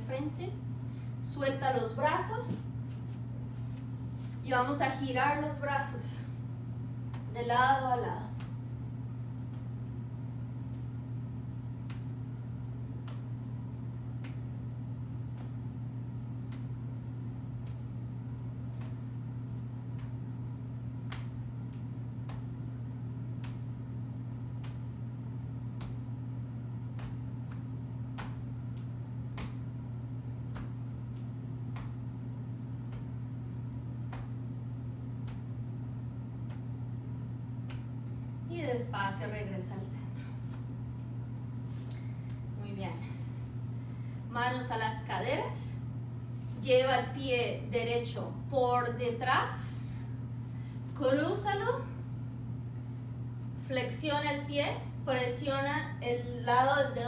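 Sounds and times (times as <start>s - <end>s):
steady low hum: 0.0s - 57.0s
hands patting body: 8.3s - 11.0s, 11.6s - 38.3s.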